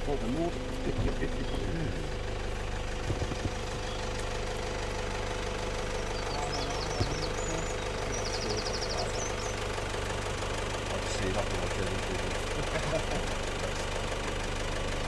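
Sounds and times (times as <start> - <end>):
car engine humming: 0.0 - 15.0
faint bird chirps: 6.0 - 9.7.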